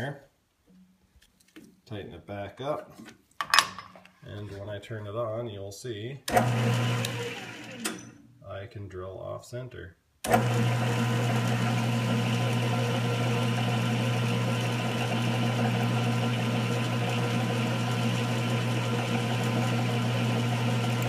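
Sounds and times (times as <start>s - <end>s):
metal lathe running: 10.3s - 21.0s.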